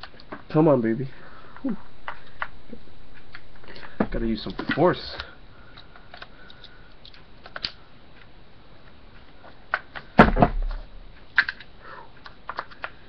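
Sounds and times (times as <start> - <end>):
plastic and metal parts clicking: 4.5 - 7.8, 11.3 - 13.0.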